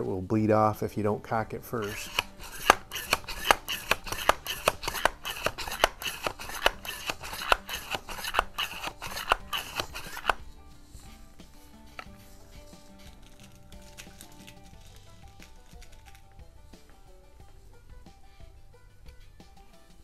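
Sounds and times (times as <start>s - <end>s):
air rifle pump handle clacking: 1.8s - 12.1s
light clicks and rubbing: 1.8s - 17.0s.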